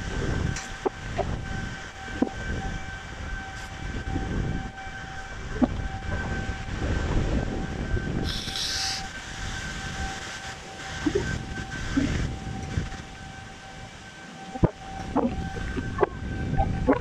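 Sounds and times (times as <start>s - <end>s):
steady high tone: 0.0s - 17.0s
wind gusting on microphone: 0.0s - 17.0s.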